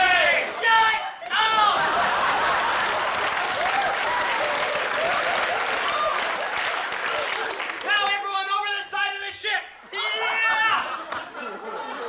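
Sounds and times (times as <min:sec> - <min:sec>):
person shouting: 0:00.0 - 0:01.8, 0:09.4 - 0:10.9
audience applauding: 0:01.6 - 0:08.4.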